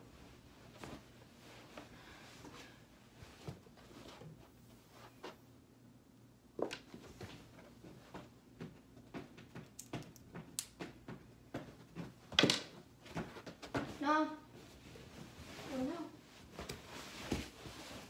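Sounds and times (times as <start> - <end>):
bedding rustling and thumping: 0.1 - 5.5, 6.9 - 18.0.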